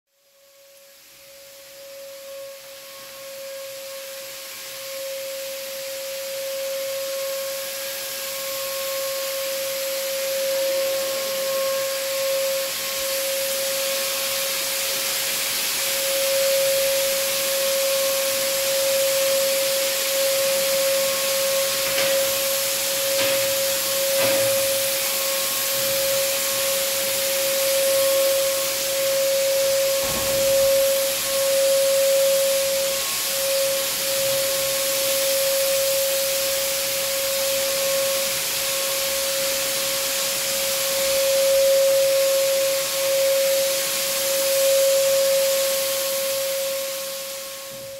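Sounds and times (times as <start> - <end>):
fogging sprayer motor whine: 0.6 - 47.9
hiss of mist blown out: 7.6 - 41.4, 43.8 - 47.9.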